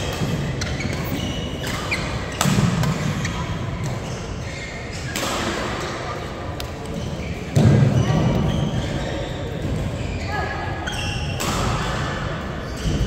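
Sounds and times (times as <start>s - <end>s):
shoes squeaking on court: 0.0s - 11.4s.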